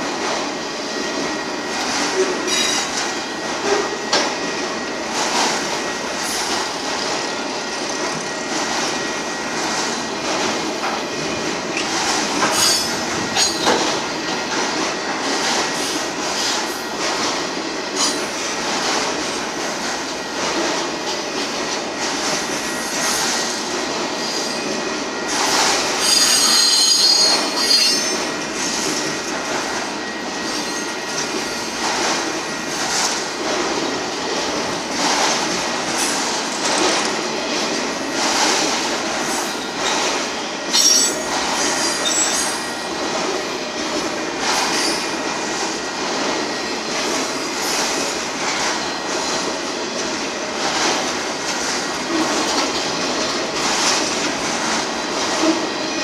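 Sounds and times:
freight train wheels on rails: 0:00.0 - 0:56.0
high-pitched wheel squeal: 0:26.0 - 0:28.2.

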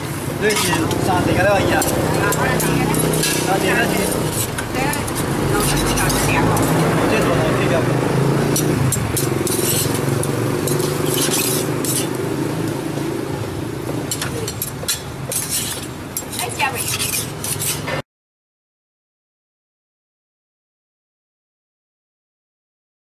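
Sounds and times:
metal spatula scraping iron pans: 0:00.4 - 0:07.7, 0:08.5 - 0:12.4, 0:14.0 - 0:18.0.

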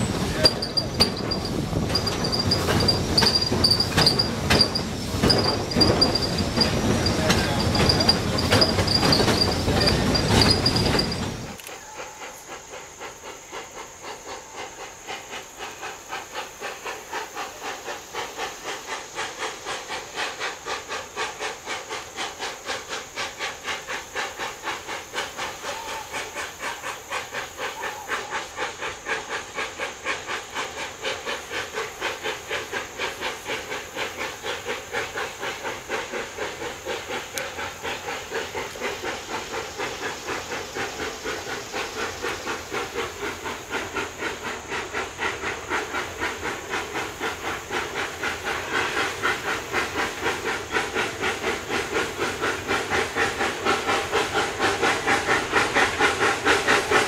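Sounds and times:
high wheel squeal: 0:00.0 - 0:12.0
distant steam locomotive chuffing: 0:00.0 - 0:57.0
train wheels clattering: 0:00.0 - 0:57.0.

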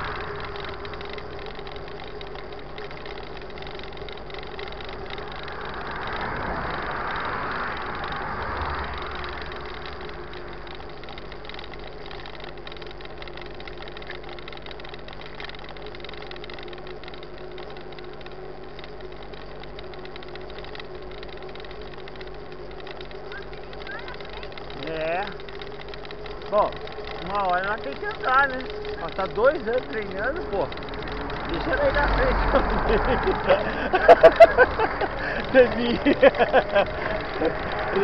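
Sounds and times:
bike tyres rolling on asphalt: 0:00.0 - 0:38.0
low steady hum: 0:00.0 - 0:38.0
rushing noise: 0:04.8 - 0:11.4.

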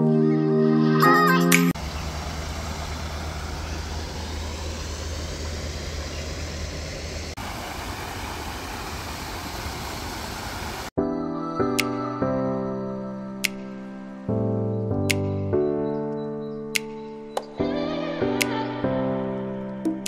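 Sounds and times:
low rumble: 0:01.8 - 0:10.1.

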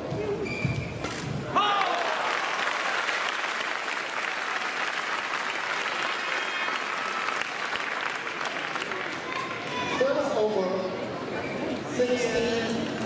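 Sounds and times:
spectators applauding: 0:01.6 - 0:10.0.

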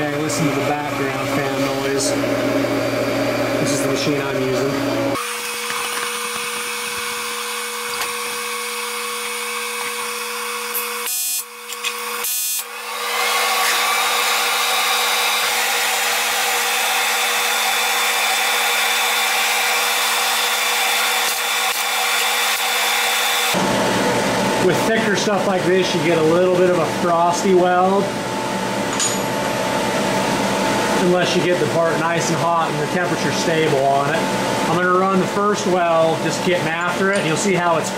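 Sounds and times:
cooling fan running: 0:00.0 - 0:37.9.

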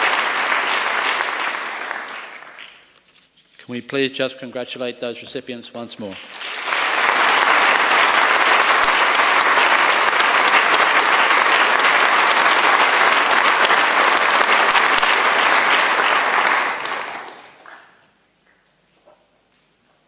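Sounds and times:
audience applauding: 0:00.0 - 0:02.9, 0:06.0 - 0:18.0.

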